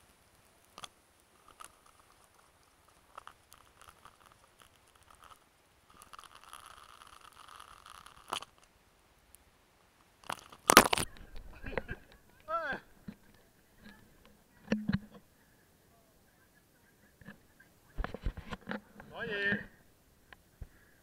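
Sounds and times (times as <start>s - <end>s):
camera handling rustle and taps: 18.0s - 18.8s.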